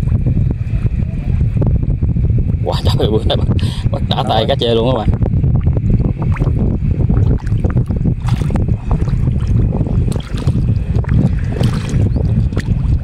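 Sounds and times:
wind buffeting microphone: 0:00.0 - 0:13.0
hands squelching through mud: 0:08.2 - 0:12.9.

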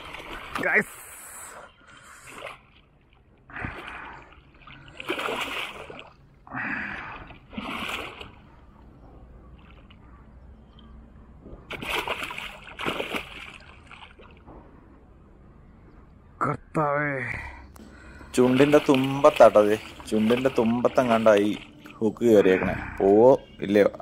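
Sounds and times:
fish splashing in water: 0:00.0 - 0:00.9, 0:02.0 - 0:08.7, 0:11.7 - 0:14.5, 0:18.0 - 0:22.0.

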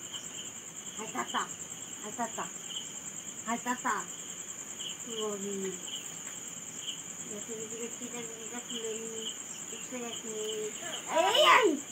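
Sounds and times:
insect chirp: 0:00.0 - 0:11.9
insects trilling: 0:00.0 - 0:11.9
faint voice: 0:07.3 - 0:11.9.

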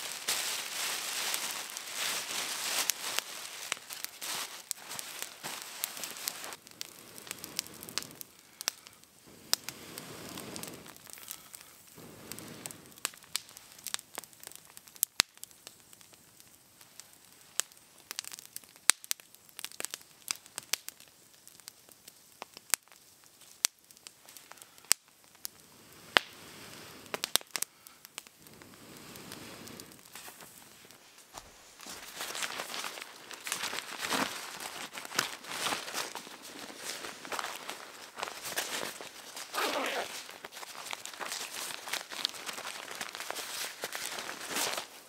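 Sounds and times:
rustling: 0:00.0 - 0:08.2, 0:28.5 - 0:45.0
campfire crackling and popping: 0:00.0 - 0:45.0.

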